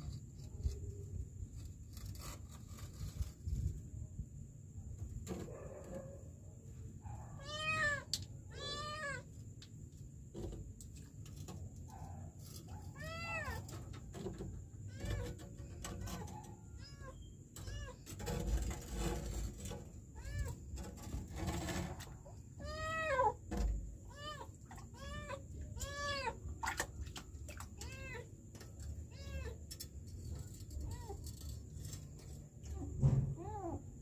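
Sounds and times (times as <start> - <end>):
rustling and scraping: 0.0 - 7.0, 7.9 - 34.0
kitten meowing: 7.4 - 9.2.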